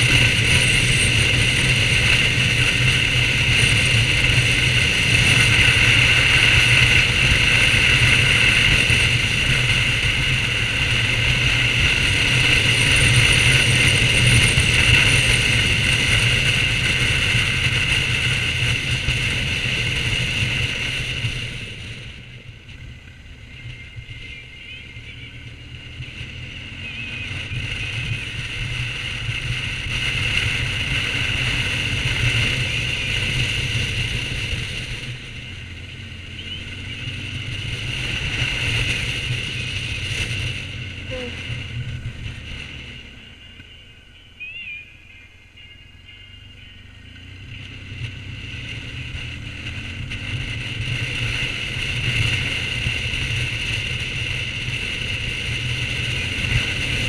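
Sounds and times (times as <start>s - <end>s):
loud wind rush: 0.0s - 22.3s
motorcycle engine running: 0.0s - 57.0s.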